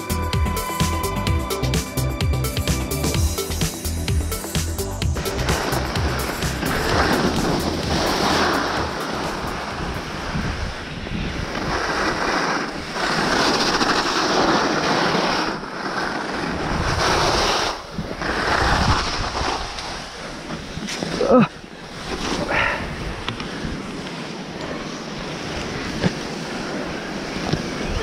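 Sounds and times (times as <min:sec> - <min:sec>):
skis scraping over snow: 0:04.6 - 0:28.0
wind on microphone: 0:05.1 - 0:21.2, 0:21.9 - 0:28.0.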